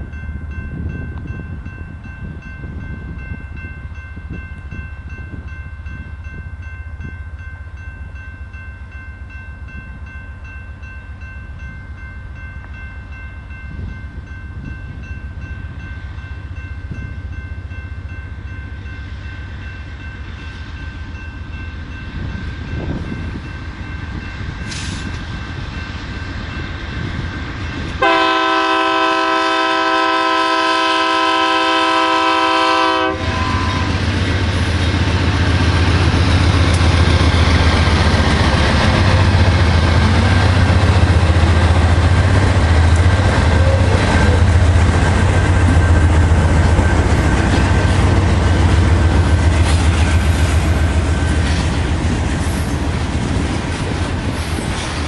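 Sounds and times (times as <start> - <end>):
locomotive engine rumble: 14.9 - 55.0
train horn blast: 28.0 - 34.1, 42.9 - 44.8.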